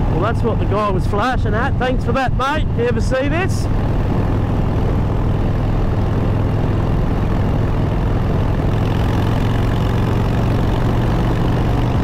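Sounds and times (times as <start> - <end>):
motorcycle engine running: 2.6 - 12.0.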